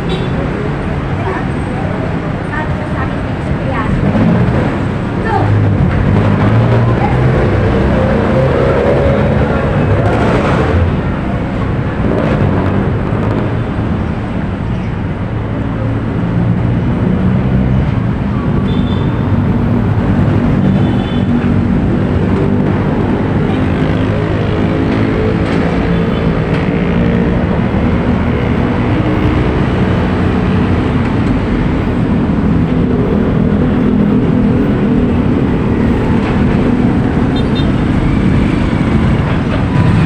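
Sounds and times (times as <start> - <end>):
car engines running: 0.0 - 40.0
motor tricycle engines: 17.8 - 40.0.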